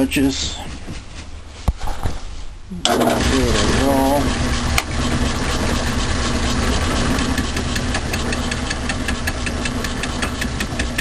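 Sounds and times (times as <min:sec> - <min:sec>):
lathe motor humming: 0:02.8 - 0:11.0
fly cutter ticking on metal: 0:07.2 - 0:11.0.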